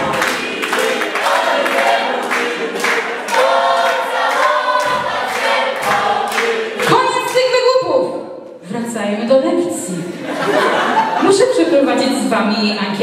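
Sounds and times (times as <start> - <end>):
music with steady beat: 0.0 - 7.3
voices singing: 0.0 - 7.9.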